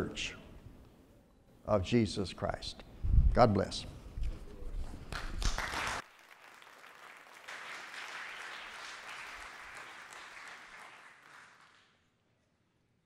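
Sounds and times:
congregation applauding: 5.1 - 12.0.

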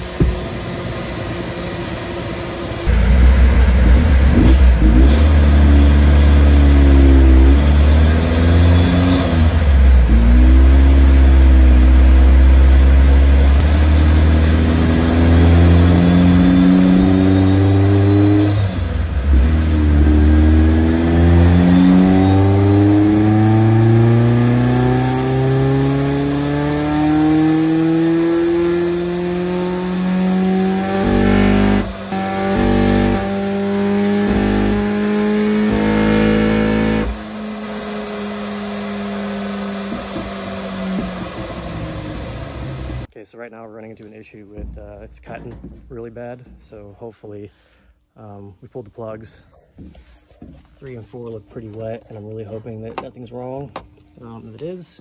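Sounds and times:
car engine revving under load: 0.0 - 43.1
high supercharger whine: 0.0 - 43.1.

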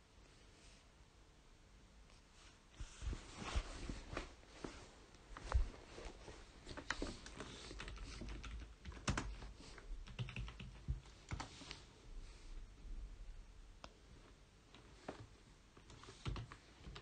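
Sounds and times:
keyboard typing clicks: 10.0 - 11.5.

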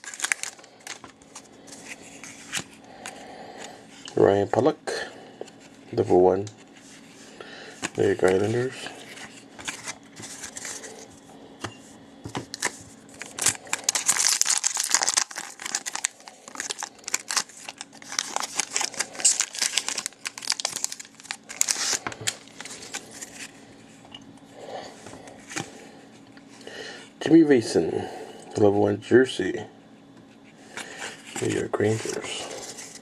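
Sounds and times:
foil wrapper tearing and crinkling: 0.0 - 1.1, 12.5 - 23.6.

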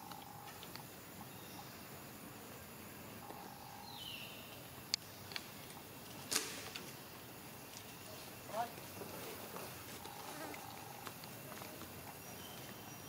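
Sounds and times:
forest ambience hiss: 0.0 - 13.0.

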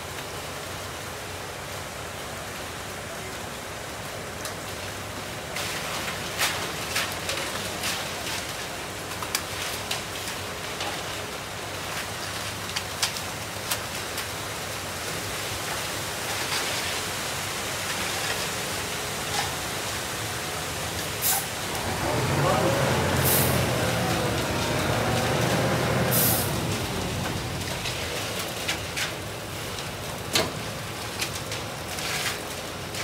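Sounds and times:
wet concrete pouring down chute: 0.0 - 33.0
rake scraping concrete: 21.2 - 29.7, 31.2 - 32.6
low engine hum: 21.5 - 29.9.

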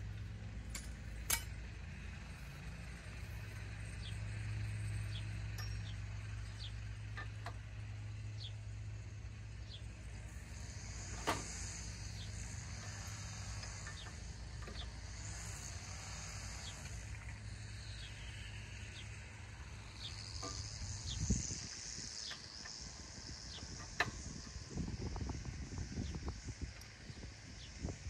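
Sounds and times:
low steady hum: 0.0 - 28.0
wrench metal click: 0.7 - 1.5
insects buzzing: 1.9 - 28.0.

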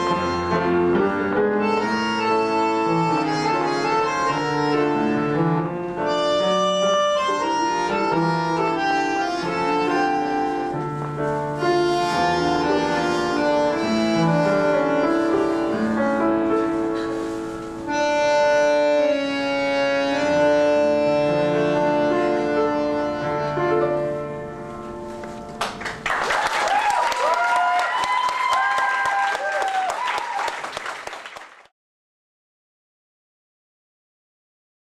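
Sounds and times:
bandoneons and piano waltz: 0.0 - 26.0.

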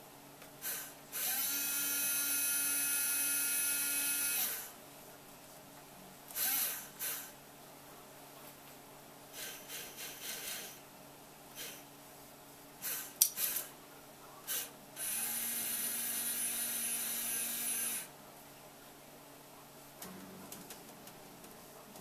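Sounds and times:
small electric motors whirring: 0.6 - 4.7, 6.3 - 7.3, 12.8 - 13.7, 14.5 - 18.1.

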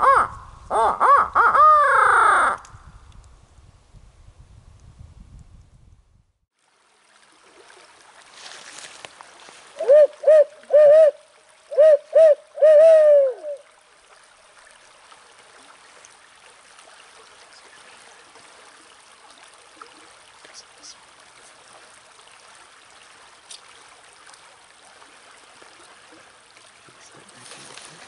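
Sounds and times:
owl hooting: 0.0 - 2.6, 9.8 - 13.6
stream rushing: 6.6 - 28.0.

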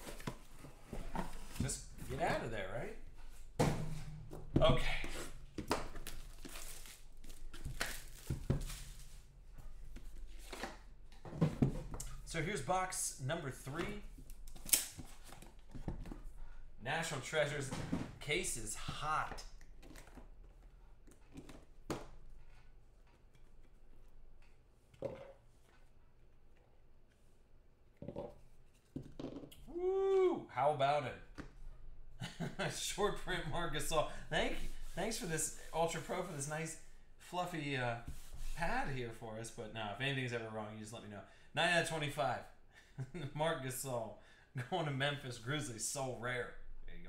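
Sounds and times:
plastic wrapping crinkling: 5.9 - 9.3.

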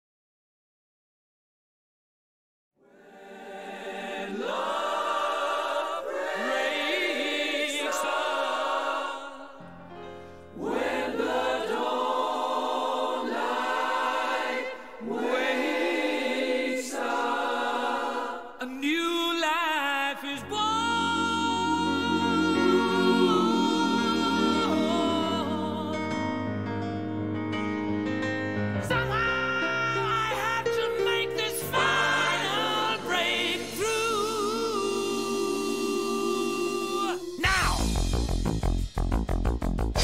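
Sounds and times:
choir singing held notes: 2.8 - 18.7, 20.4 - 26.7, 31.6 - 38.0.

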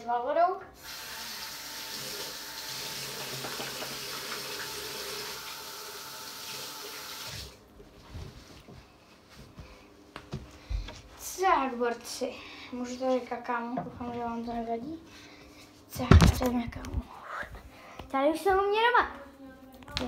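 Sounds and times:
tap running into a sink: 1.9 - 5.6.

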